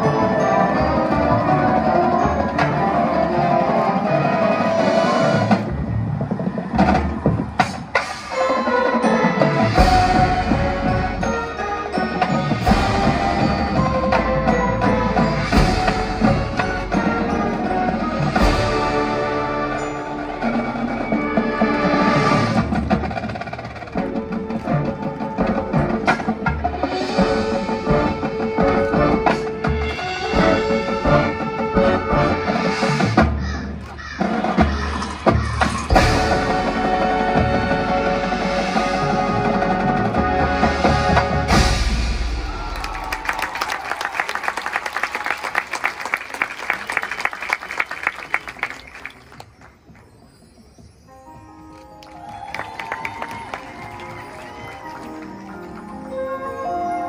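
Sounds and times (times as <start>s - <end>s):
marching band playing: 0.0s - 57.0s
drum strikes: 20.4s - 43.3s.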